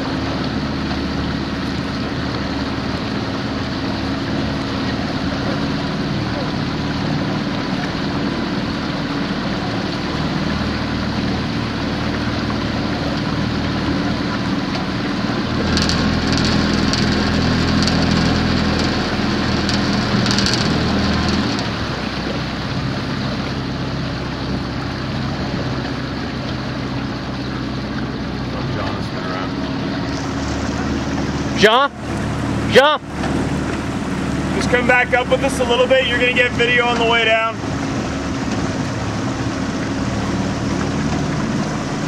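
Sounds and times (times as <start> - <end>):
outboard motor running: 0.0 - 42.0.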